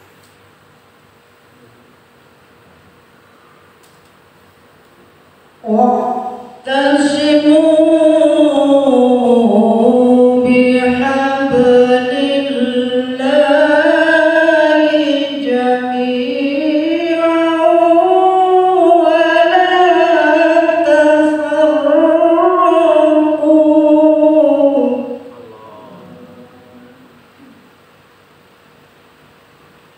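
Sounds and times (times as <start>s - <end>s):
man chanting into a microphone: 8.8s - 27.2s.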